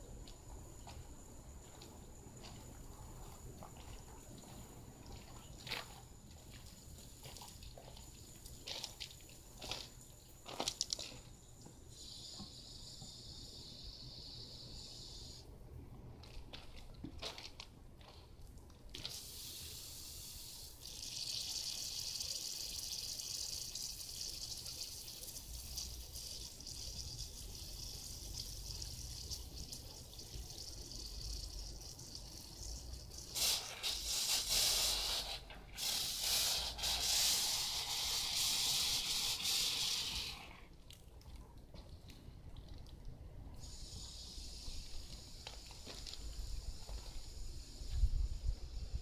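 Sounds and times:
water spraying from hose wand: 0:19.0 - 0:40.6.

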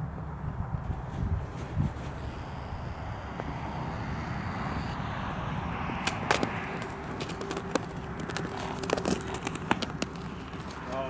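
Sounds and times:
wind noise on microphone: 0:00.0 - 0:10.9
hooves on frozen snowy ground: 0:00.8 - 0:02.7, 0:05.4 - 0:11.0.

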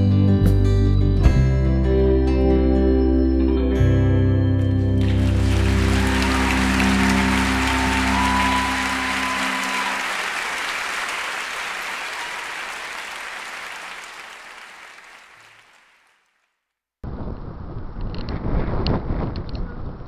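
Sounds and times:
audience applause: 0:05.0 - 0:16.4.

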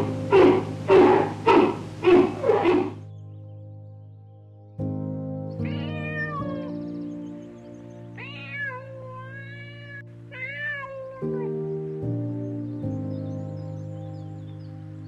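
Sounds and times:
background music sustained notes: 0:00.0 - 0:15.0
cat meowing: 0:05.6 - 0:06.8, 0:08.2 - 0:11.6.

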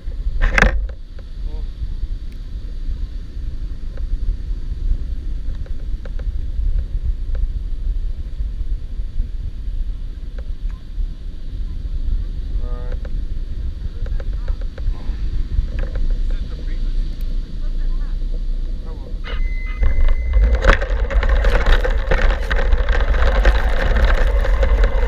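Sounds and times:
wind buffeting microphone: 0:00.0 - 0:25.0
brief pitched call: 0:19.2 - 0:20.5.

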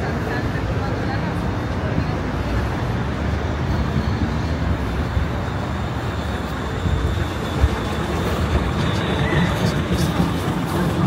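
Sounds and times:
vehicle rumbling in motion: 0:00.0 - 0:11.0.

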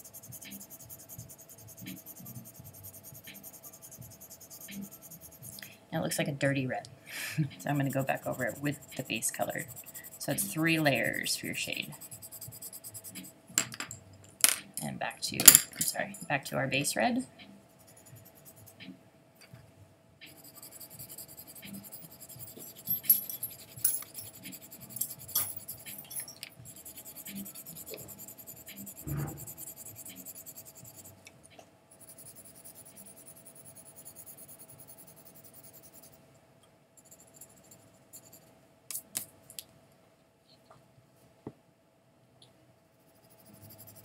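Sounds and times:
colored pencil scratching paper: 0:00.0 - 0:05.6, 0:07.5 - 0:13.4, 0:17.7 - 0:18.8, 0:20.3 - 0:31.2, 0:31.9 - 0:36.2, 0:37.0 - 0:38.4, 0:43.0 - 0:44.0.

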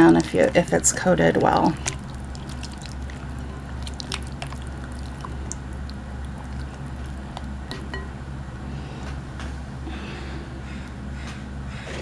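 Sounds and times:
wet squishing of hands rubbing meat: 0:00.0 - 0:07.8
steady low hum: 0:00.0 - 0:12.0.

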